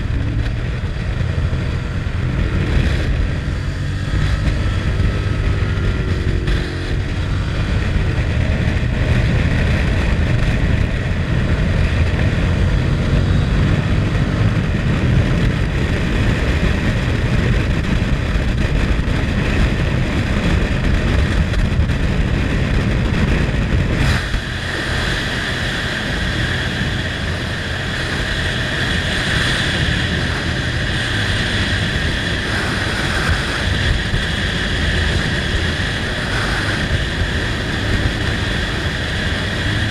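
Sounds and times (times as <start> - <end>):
motorcycle engine running: 0.0 - 39.9
wind on microphone: 0.0 - 39.9.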